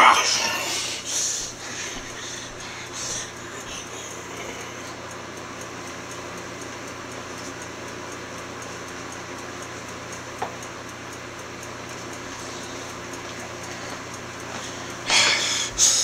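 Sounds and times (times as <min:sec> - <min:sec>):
room hiss: 0:00.0 - 0:05.1, 0:13.6 - 0:16.0.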